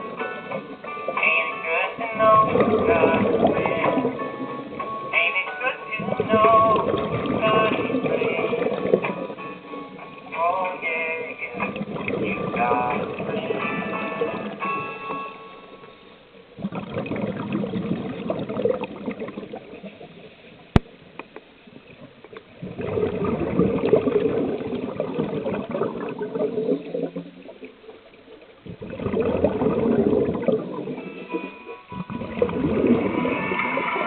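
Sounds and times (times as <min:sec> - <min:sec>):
diver exhaling bubbles underwater: 0:02.0 - 0:04.8, 0:06.0 - 0:09.4, 0:11.6 - 0:14.6, 0:16.6 - 0:20.3, 0:21.8 - 0:31.1, 0:31.9 - 0:34.0.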